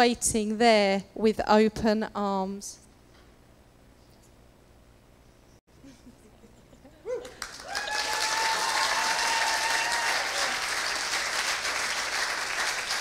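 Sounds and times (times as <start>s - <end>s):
person cheering woo: 7.0s - 10.6s
crowd applauding: 7.2s - 13.0s.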